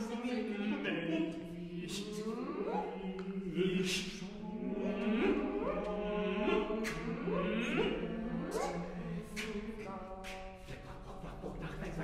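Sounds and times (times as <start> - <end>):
a cappella ensemble singing: 0.0 - 12.0
hissed consonants: 0.0 - 12.0.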